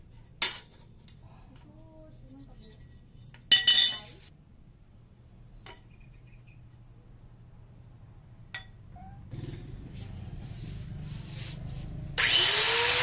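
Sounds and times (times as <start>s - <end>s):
steady rubbing noise: 9.3s - 12.2s.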